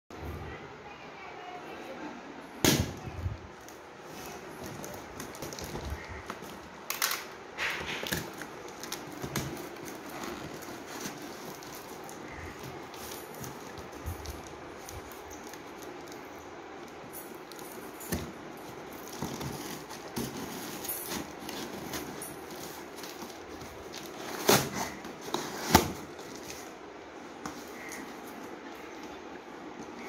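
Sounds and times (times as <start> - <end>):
small crackles and scrapes: 3.0 - 30.0
packing tape peeling off cardboard: 16.8 - 26.8.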